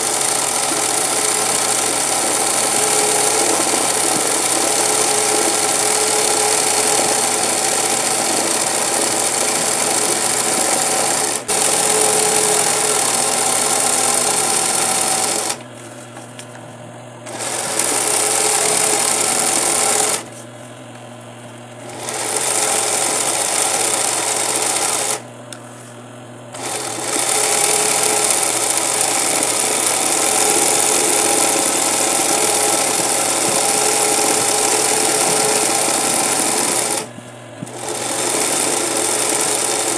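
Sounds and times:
sewing machine stitching: 0.0 - 15.7, 17.2 - 20.4, 21.8 - 25.3, 26.5 - 39.9.

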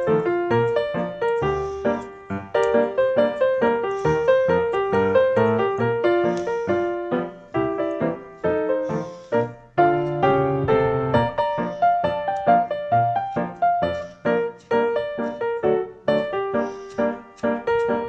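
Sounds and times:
piano music: 0.0 - 18.0.

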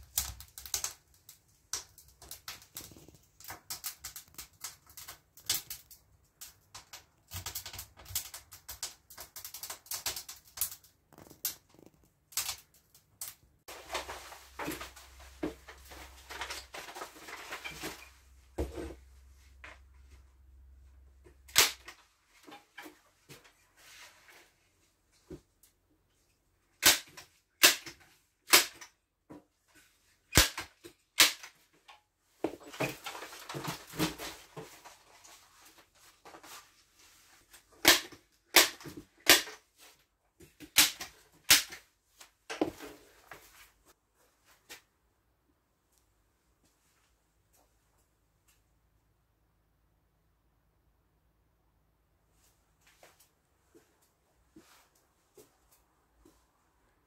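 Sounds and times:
paper rustling and crinkling: 13.7 - 19.9, 32.4 - 37.8
board rustling and handling: 13.7 - 20.3, 21.2 - 25.5, 29.3 - 44.9.

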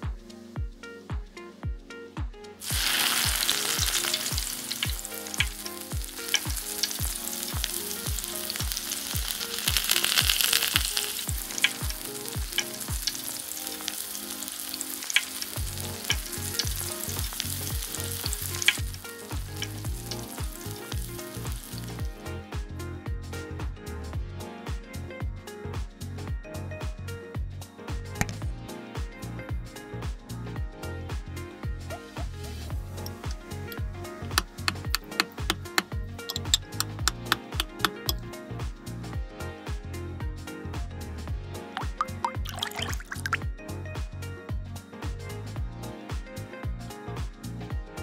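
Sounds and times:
bacon sizzling in a pan: 2.6 - 22.1
metal tongs clicking on pan: 34.6 - 38.2.

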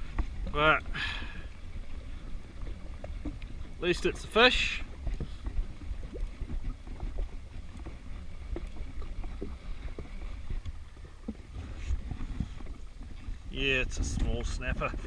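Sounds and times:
water slapping: 0.0 - 15.0
wind and sea rumble: 0.0 - 15.0.

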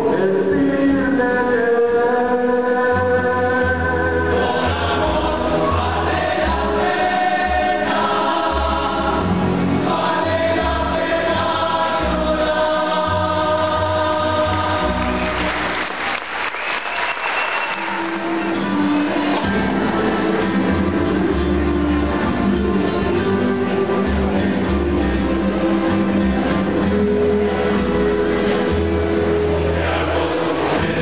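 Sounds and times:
plucked double bass: 0.0 - 15.5, 18.2 - 31.0
men's chorus singing: 0.0 - 15.6, 29.3 - 31.0
audience applause: 14.8 - 20.3.

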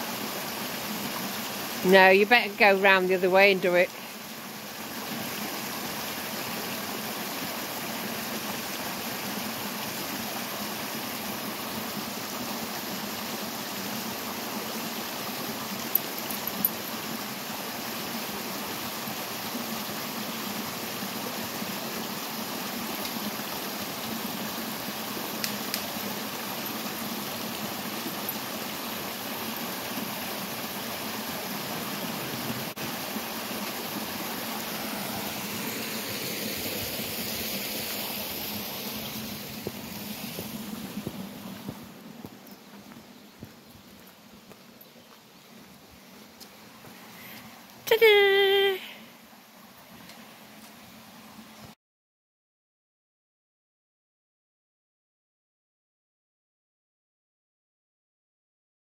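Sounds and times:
stream splashing over rocks: 0.0 - 51.4.

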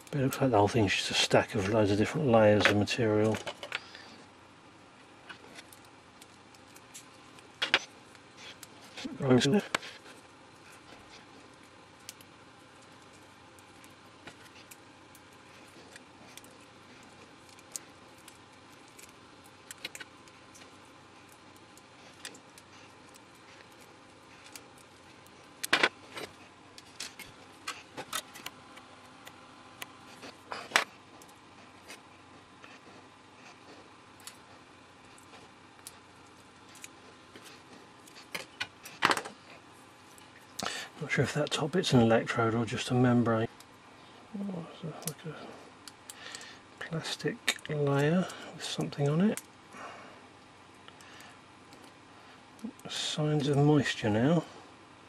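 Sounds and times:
quiet steady hiss: 0.0 - 55.0.

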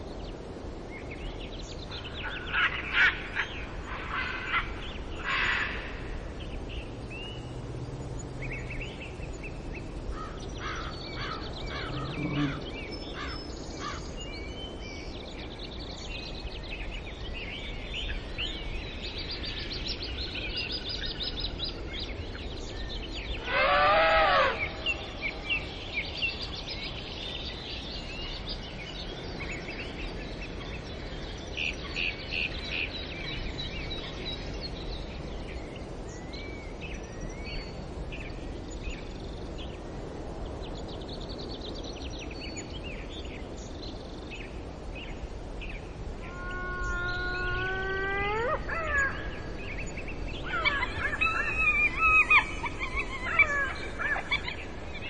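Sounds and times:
steady background hiss: 0.0 - 55.0
birds chirping and calling: 8.3 - 14.2, 46.2 - 55.0
loud wavering bird call: 11.2 - 12.7, 23.4 - 25.4, 46.2 - 55.0.

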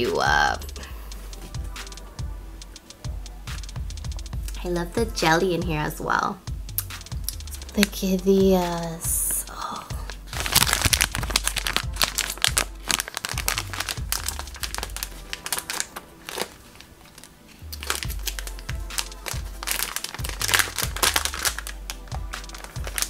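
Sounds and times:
background music with bass: 0.0 - 16.4, 17.6 - 23.0
plastic bag crinkling: 10.0 - 23.0.

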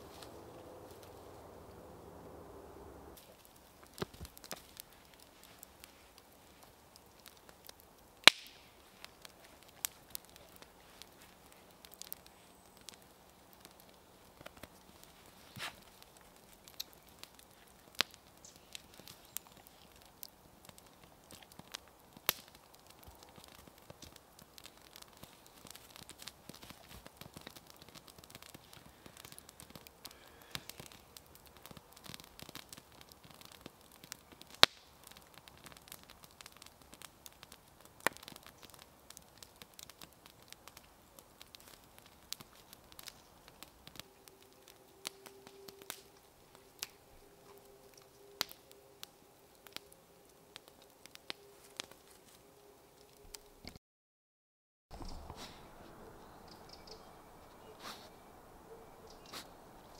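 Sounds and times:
faint steady whine: 0.0 - 7.0
campfire crackling and popping: 0.0 - 53.8, 56.5 - 58.1, 59.0 - 59.9.

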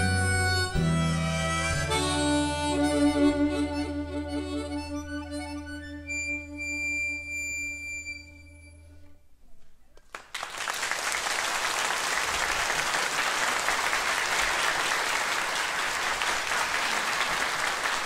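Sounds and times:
harmonica chord: 0.0 - 9.4
audience applause: 10.0 - 18.0.

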